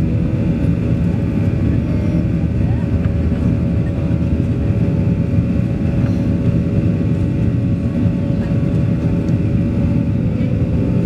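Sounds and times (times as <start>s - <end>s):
airplane cabin engine roar: 0.0s - 11.0s.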